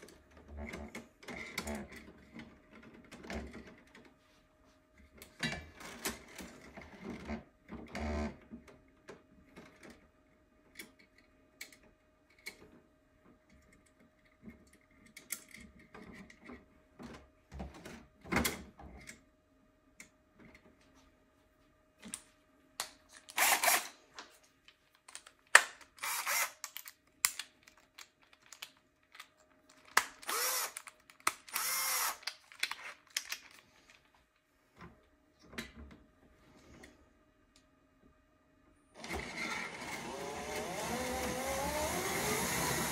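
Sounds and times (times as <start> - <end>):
plastic parts clicking and knocking: 22.8 - 34.1
power drill running: 23.4 - 23.9, 26.0 - 26.6, 30.2 - 30.8, 31.5 - 32.2, 39.0 - 42.9.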